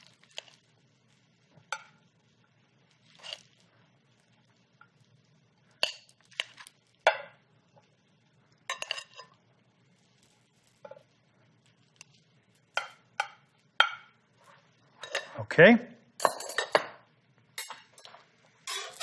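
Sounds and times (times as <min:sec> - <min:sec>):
metal tongs clinking on glass: 0:08.7 - 0:09.3, 0:16.2 - 0:16.9, 0:17.6 - 0:19.0.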